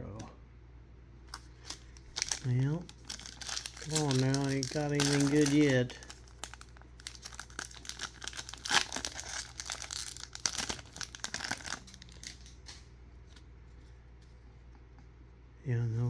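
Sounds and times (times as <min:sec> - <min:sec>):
foil wrapper crinkling and tearing: 0:01.3 - 0:12.7.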